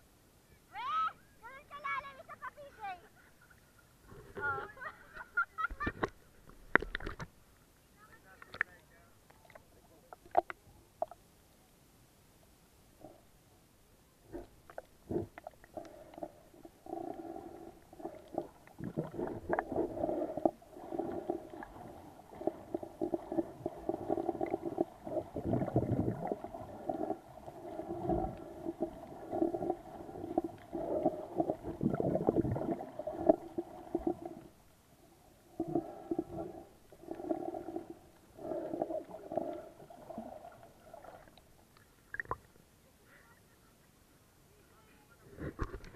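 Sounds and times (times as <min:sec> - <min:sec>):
muffled underwater water rushing: 0:14.2 - 0:42.5.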